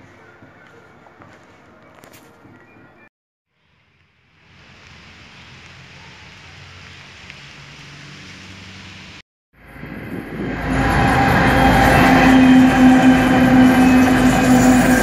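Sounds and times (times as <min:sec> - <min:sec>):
diesel locomotive approaching: 0:07.8 - 0:15.0.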